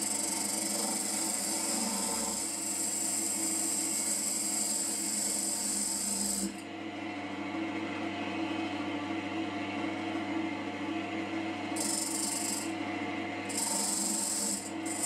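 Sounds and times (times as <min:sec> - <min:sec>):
rasping hiss of wood cutting: 0:00.0 - 0:06.5, 0:13.5 - 0:15.0
wood lathe humming: 0:00.0 - 0:06.6, 0:11.8 - 0:12.7, 0:13.5 - 0:15.0.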